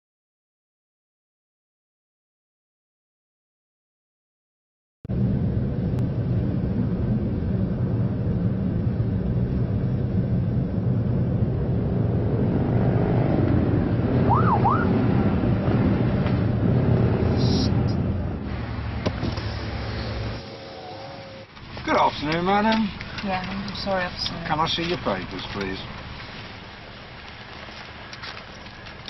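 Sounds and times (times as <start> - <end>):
car engine and road noise: 5.1 - 29.0
whistle-like tone: 14.3 - 14.9.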